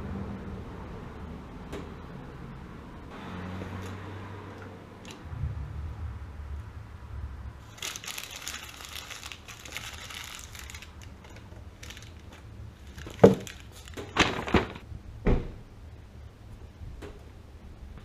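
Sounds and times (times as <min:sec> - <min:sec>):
low steady hum: 0:04.5 - 0:18.0
rag rustling and crinkling: 0:07.6 - 0:14.8.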